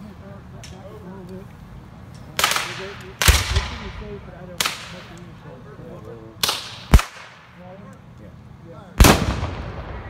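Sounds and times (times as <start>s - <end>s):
rifles firing blanks: 2.1s - 5.5s.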